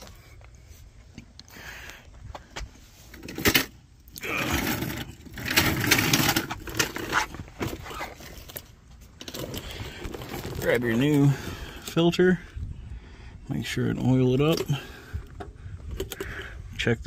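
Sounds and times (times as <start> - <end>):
rustling and scuffing on concrete: 0.0 - 3.2.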